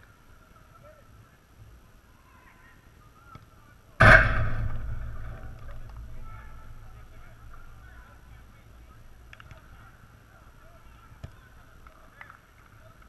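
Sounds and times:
distant shouts of players: 2.0s - 12.9s
loud ringing hit: 4.0s - 8.3s.

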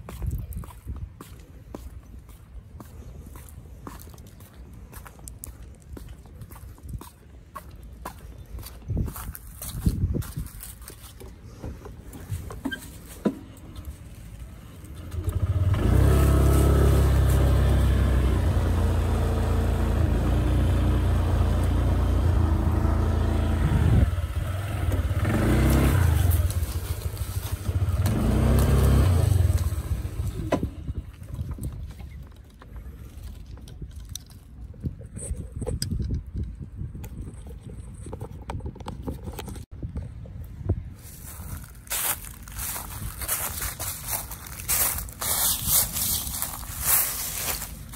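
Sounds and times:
vehicle engine running: 13.0s - 31.6s, 42.5s - 47.9s.

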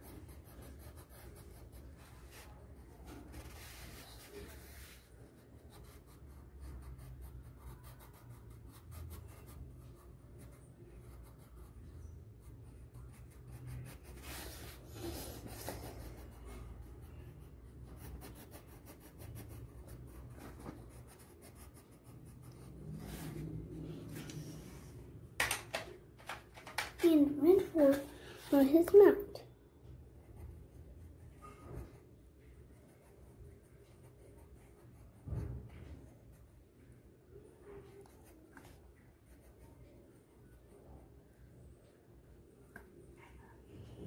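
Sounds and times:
pencil scratching on paper: 0.0s - 24.8s, 32.6s - 36.4s, 37.8s - 40.2s.

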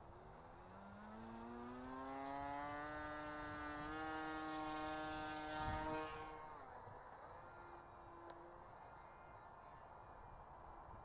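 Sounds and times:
model plane motor whining: 0.1s - 9.9s
wind buffeting microphone: 4.8s - 6.5s.

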